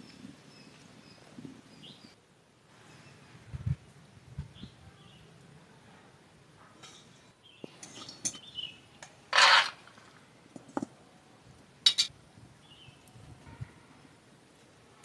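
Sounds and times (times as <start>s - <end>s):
metal spatula scraping in wok: 9.3s - 10.0s.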